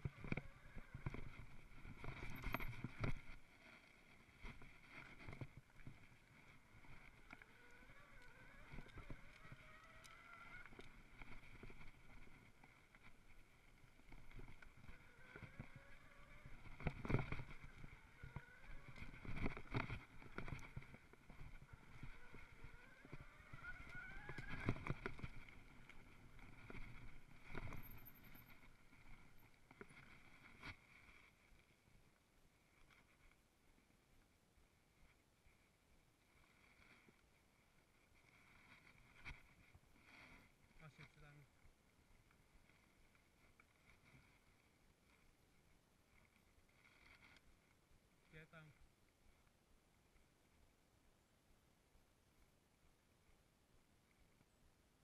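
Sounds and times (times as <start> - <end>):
mountain bike rattling on dirt trail: 0.0 - 30.9
faint whine rising in pitch: 14.3 - 29.5.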